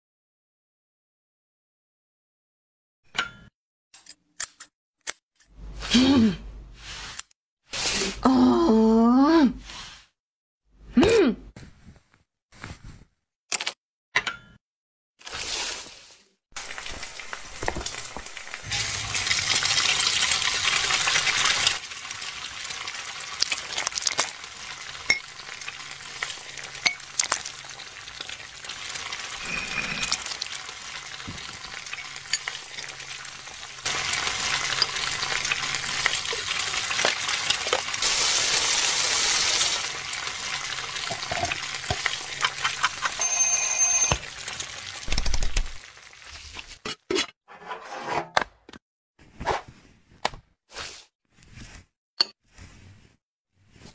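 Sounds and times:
frying-like hiss: 15.3s - 43.2s
kitchen clicks and clinks: 41.1s - 44.3s
short high beep: 43.2s - 44.2s.

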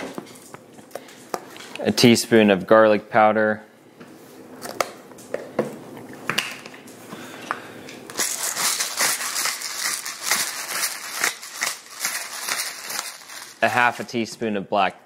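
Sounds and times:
pepper mill grinding: 8.1s - 14.0s.

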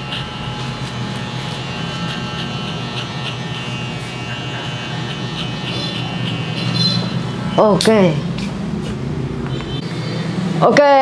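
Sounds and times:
electric hair clipper buzzing: 0.0s - 8.5s.

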